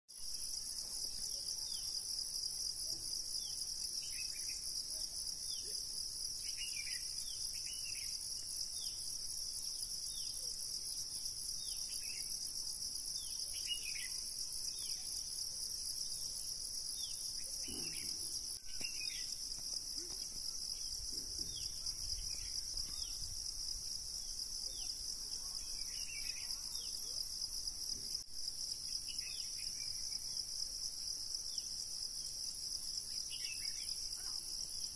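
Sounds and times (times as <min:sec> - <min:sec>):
insects chorus: 0:00.3 - 0:34.9
bird chirps: 0:17.0 - 0:19.4.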